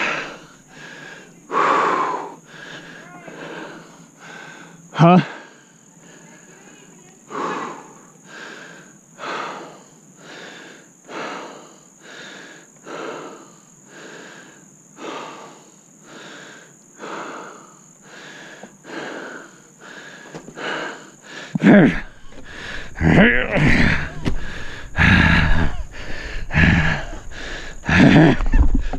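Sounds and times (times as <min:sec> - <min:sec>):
man breathing hard: 0:00.0 - 0:06.3, 0:07.3 - 0:28.9
heavy thud: 0:22.2 - 0:25.8.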